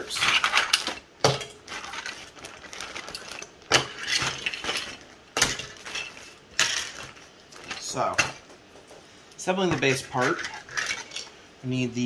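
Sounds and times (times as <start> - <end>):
plastic parts knocking and clattering: 0.0 - 9.1
plastic bag rustling: 0.0 - 11.4.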